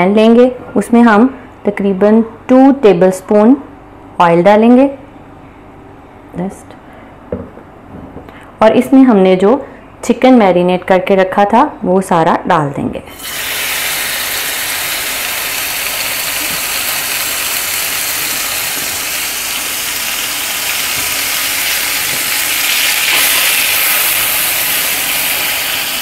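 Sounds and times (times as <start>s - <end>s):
chicken sizzling in hot oil: 13.1s - 26.0s.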